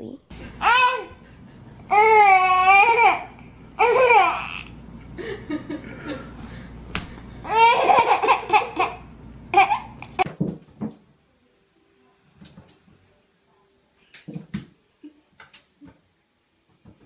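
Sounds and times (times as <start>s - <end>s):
baby babbling: 0.6s - 1.2s
baby laughing and squealing: 0.6s - 1.2s, 7.5s - 10.2s.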